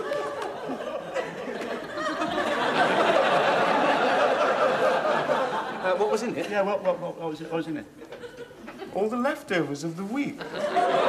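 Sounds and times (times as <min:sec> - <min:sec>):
audience laughing: 0:00.0 - 0:06.8, 0:10.4 - 0:11.0.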